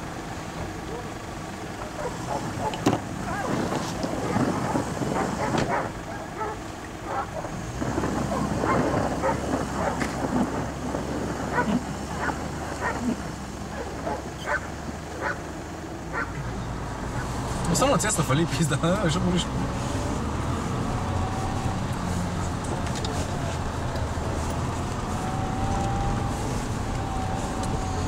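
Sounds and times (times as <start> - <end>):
car engine working: 0.0 - 28.0
tyres churning snow: 0.0 - 28.0
rushing noise: 16.8 - 28.0.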